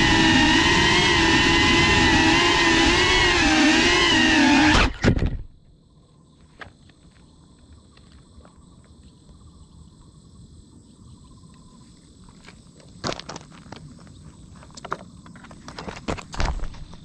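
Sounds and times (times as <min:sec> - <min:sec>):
drone motors whining: 0:00.0 - 0:05.6
insects buzzing: 0:00.0 - 0:17.0.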